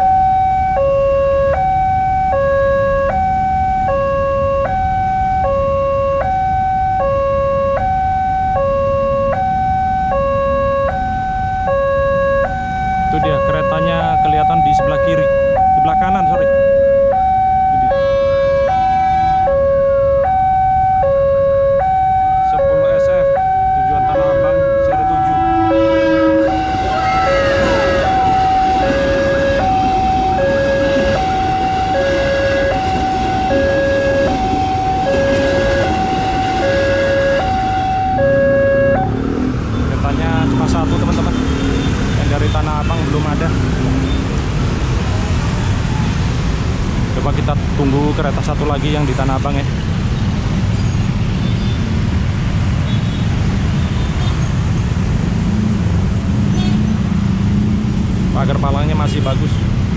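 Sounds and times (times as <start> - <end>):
level crossing two-tone alarm: 0.0 - 39.1
dense road traffic: 0.0 - 59.9
electric train passing: 23.7 - 42.2.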